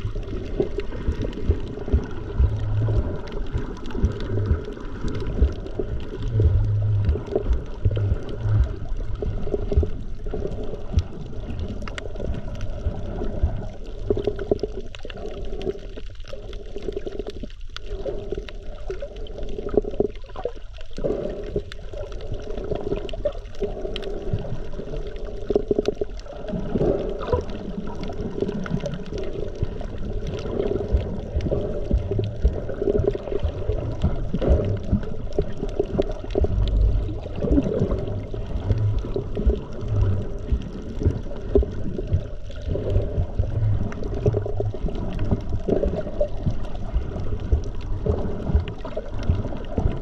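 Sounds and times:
small underwater ticks and clicks: 0:00.0 - 0:50.0
underwater water rumbling and gurgling: 0:00.0 - 0:50.0.

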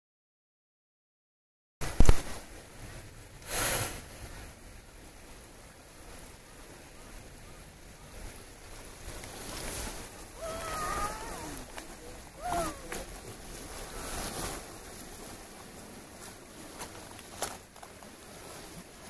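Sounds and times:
stream flowing: 0:01.8 - 0:19.0
wind on microphone: 0:01.8 - 0:19.0
faint gliding call: 0:05.5 - 0:19.0.

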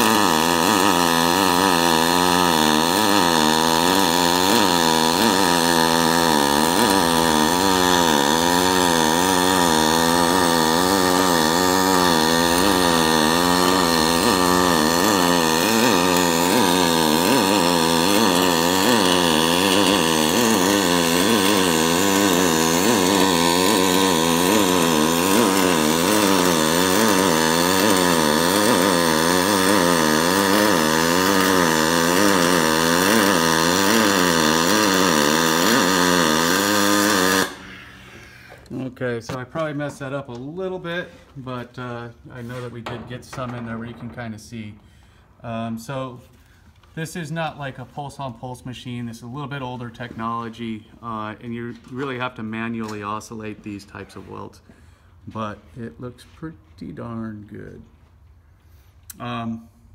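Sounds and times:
welding arc buzzing: 0:00.0 - 0:42.6.

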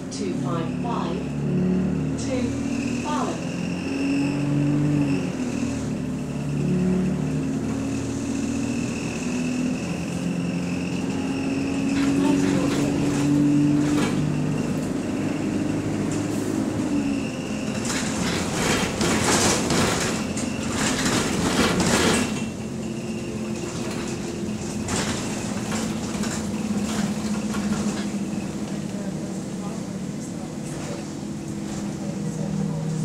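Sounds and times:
bus engine droning hum: 0:00.0 - 0:33.0
rattling clattering noise: 0:17.6 - 0:29.5.

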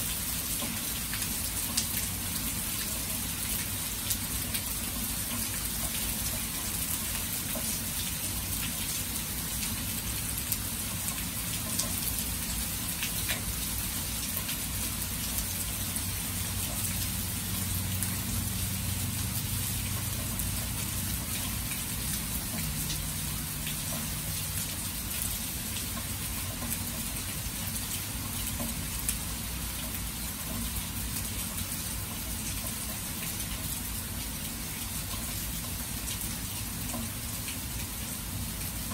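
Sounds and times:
steady rain hiss: 0:00.0 - 0:38.9
raindrop ticks: 0:00.4 - 0:07.8, 0:12.9 - 0:13.5, 0:19.7 - 0:29.2, 0:35.0 - 0:37.2.

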